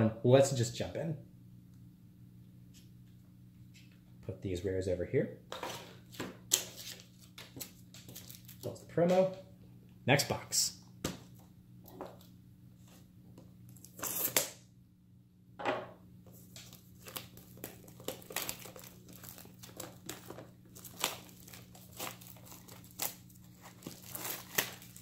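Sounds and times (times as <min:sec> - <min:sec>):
plastic shrink wrap tearing: 0:08.0 - 0:08.7, 0:13.8 - 0:14.6, 0:16.3 - 0:25.0.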